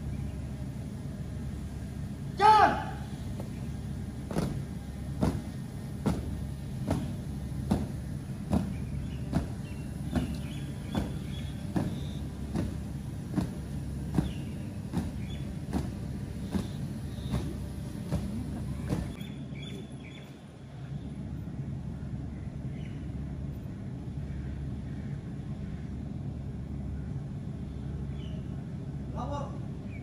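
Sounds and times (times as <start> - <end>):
steady low rumble: 0.0 - 30.0
evenly spaced thuds: 4.2 - 19.2.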